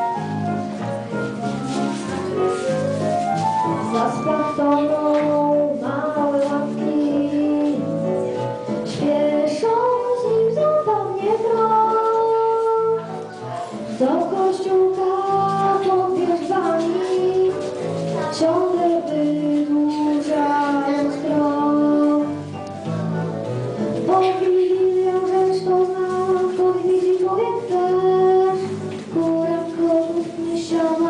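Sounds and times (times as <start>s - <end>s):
instrumental backing with bass: 0.0s - 31.0s
girl singing into a microphone: 3.8s - 23.3s, 24.0s - 31.0s.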